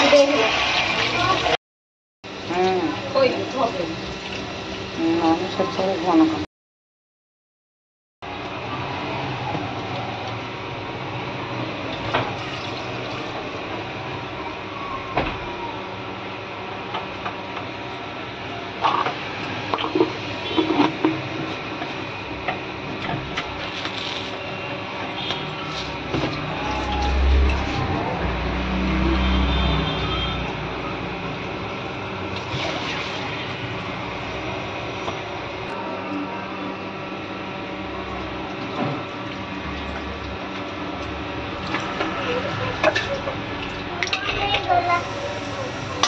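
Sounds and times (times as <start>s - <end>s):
oil sizzling in a wok: 0.0s - 1.6s, 2.3s - 6.4s, 42.9s - 46.0s
oil hissing in a wok: 44.7s - 46.0s.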